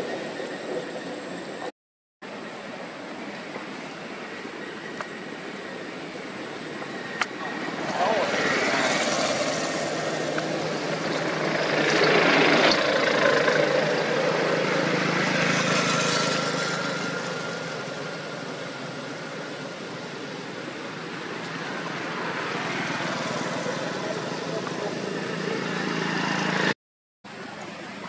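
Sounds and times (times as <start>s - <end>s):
motor vehicle passing: 7.3s - 20.2s.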